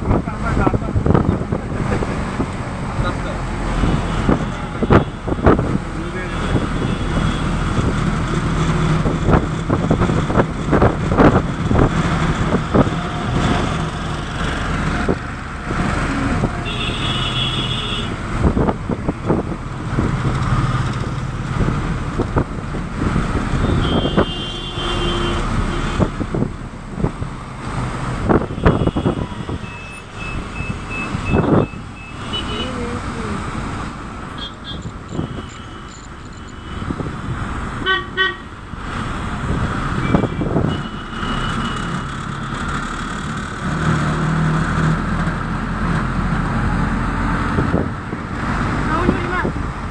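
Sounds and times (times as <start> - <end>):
engine and tyre rumble: 0.0 - 49.9
short high-pitched beeps: 29.7 - 32.2.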